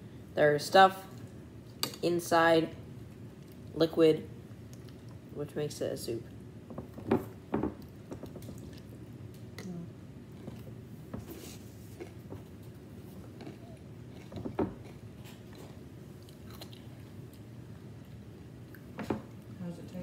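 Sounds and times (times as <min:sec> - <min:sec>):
person chewing cereal: 0:11.5 - 0:18.9.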